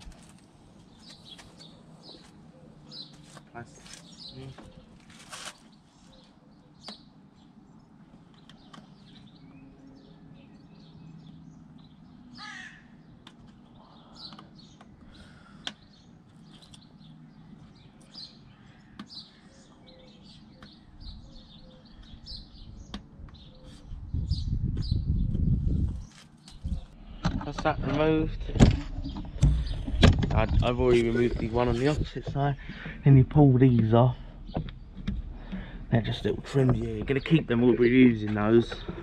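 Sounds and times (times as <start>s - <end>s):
birds chirping: 0.0s - 39.0s
loud low rumbling: 26.6s - 39.0s.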